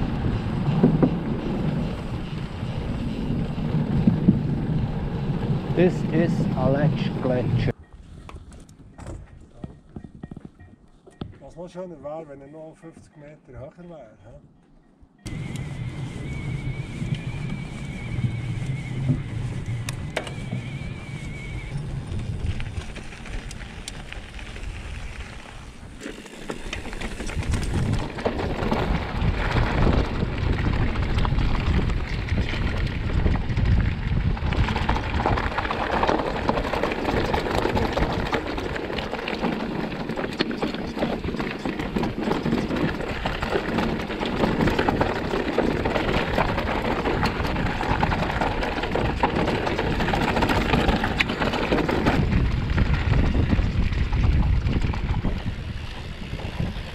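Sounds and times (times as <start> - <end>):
bike tyres on stones and gravel: 0.0 - 12.6, 15.3 - 56.9
bike clattering: 15.3 - 56.9.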